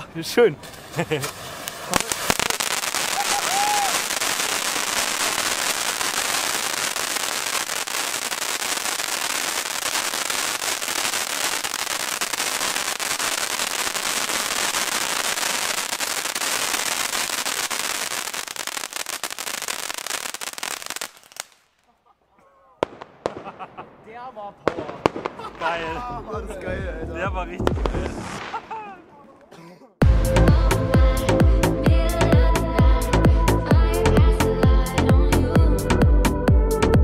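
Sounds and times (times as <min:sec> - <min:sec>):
firework fountain crackling: 0:00.5 - 0:21.8, 0:22.8 - 0:26.3, 0:27.6 - 0:28.9.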